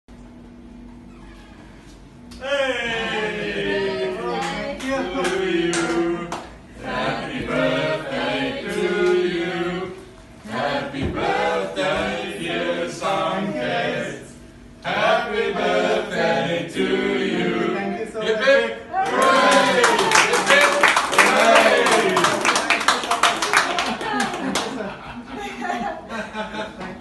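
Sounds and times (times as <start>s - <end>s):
group singing unaccompanied: 2.4s - 18.2s.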